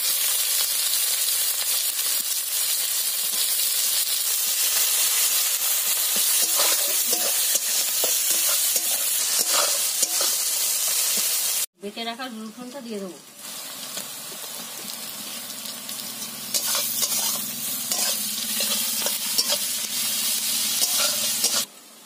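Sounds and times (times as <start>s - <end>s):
onions sizzling in hot oil: 0.0s - 22.0s
metal spatula scraping pan: 6.2s - 10.4s, 16.5s - 21.7s.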